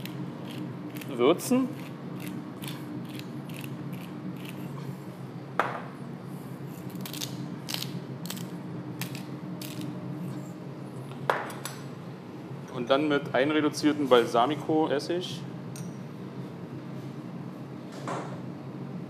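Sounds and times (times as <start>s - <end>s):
pepper mill grinding ticks: 0.0s - 4.6s
low kitchen hum: 0.0s - 19.0s.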